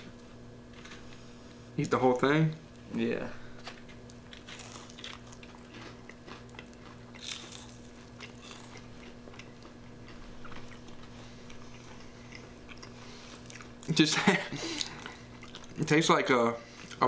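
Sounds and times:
steady low hum: 0:00.0 - 0:17.0
crunchy chewing: 0:03.7 - 0:13.9, 0:14.7 - 0:15.8.

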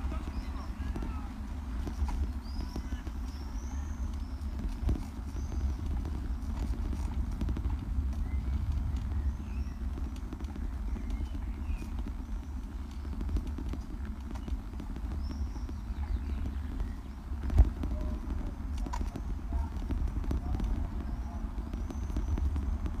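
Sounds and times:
bicycle rolling over bricks: 0:00.0 - 0:23.0
small birds chirping: 0:00.0 - 0:23.0.

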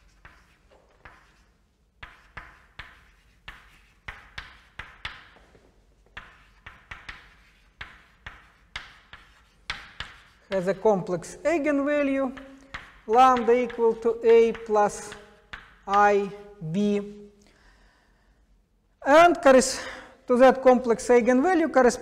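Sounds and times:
chalk tapping and scratching: 0:00.0 - 0:17.1.

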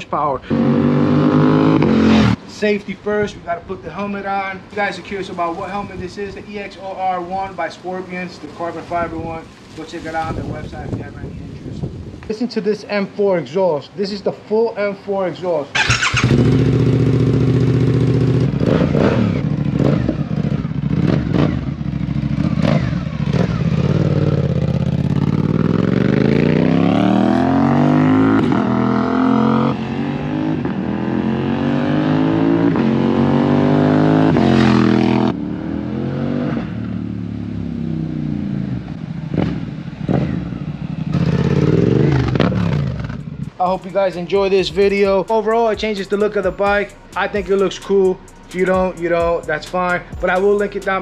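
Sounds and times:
motorcycle engine revving: 0:00.4 - 0:02.4, 0:15.7 - 0:51.0.

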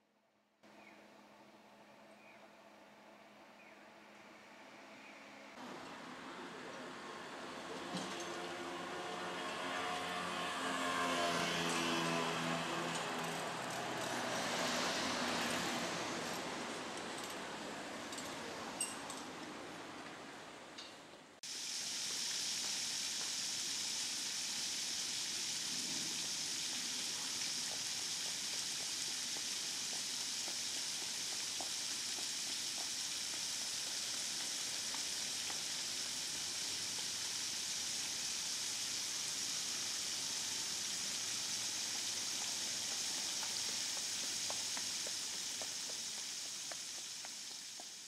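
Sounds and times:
rain falling on paving: 0:21.4 - 0:48.0
raindrop ticks: 0:27.6 - 0:36.2, 0:41.8 - 0:48.0.

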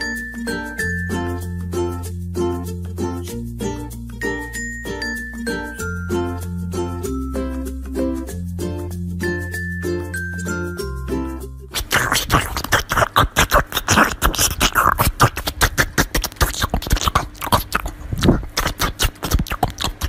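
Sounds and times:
dog chewing watermelon: 0:11.8 - 0:20.0.

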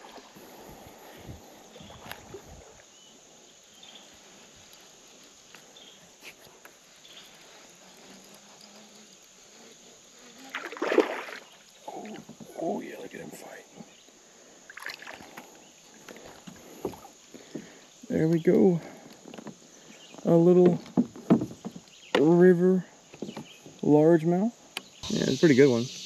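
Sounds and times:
creek ambience: 0:00.0 - 0:26.0
faint ticks: 0:04.6 - 0:04.9
fish splashing at surface: 0:10.5 - 0:11.6.

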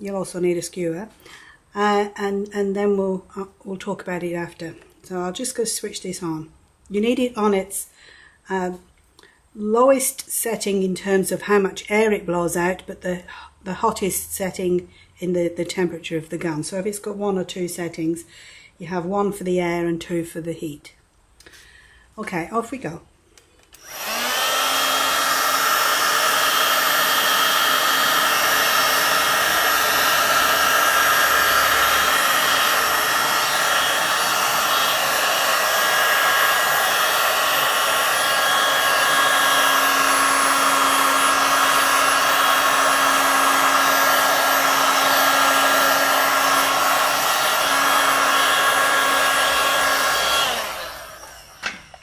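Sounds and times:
heat gun blowing air: 0:23.7 - 0:52.0.

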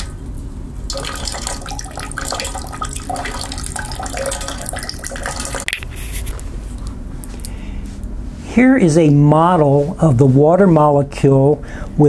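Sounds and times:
thin stream of water splashing: 0:00.0 - 0:05.7.

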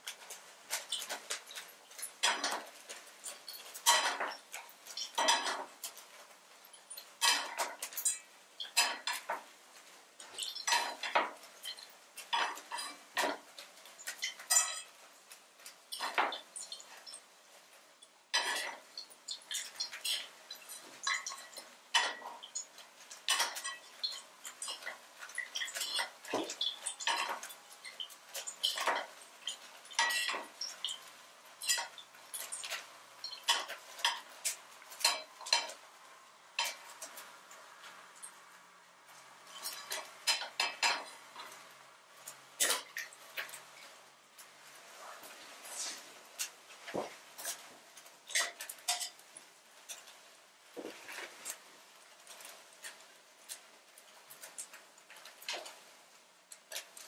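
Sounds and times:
metal utensil clinking on pots: 0:00.0 - 0:06.1, 0:06.7 - 0:09.5, 0:10.2 - 0:17.3, 0:18.3 - 0:35.8, 0:36.6 - 0:37.2, 0:39.5 - 0:41.6, 0:46.4 - 0:50.2.

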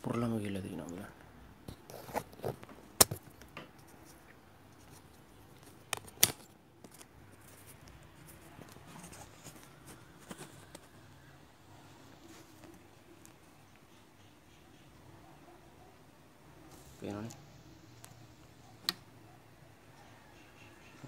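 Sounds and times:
clicks and snaps of small parts: 0:05.6 - 0:07.1.

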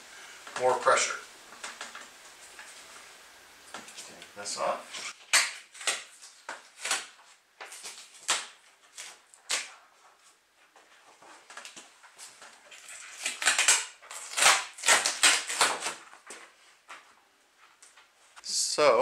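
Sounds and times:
tape ripping: 0:04.9 - 0:09.8, 0:11.5 - 0:16.4
paper crinkling: 0:05.0 - 0:17.1.

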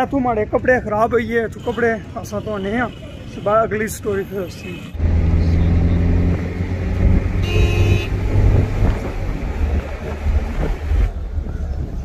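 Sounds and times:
engine and road noise rumble: 0:00.0 - 0:12.0
car horn toot: 0:07.4 - 0:08.2.

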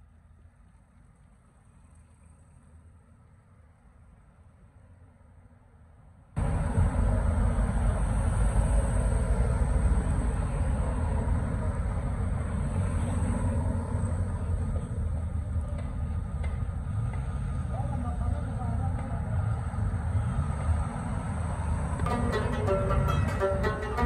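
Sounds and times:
cars driving past: 0:06.4 - 0:15.6.

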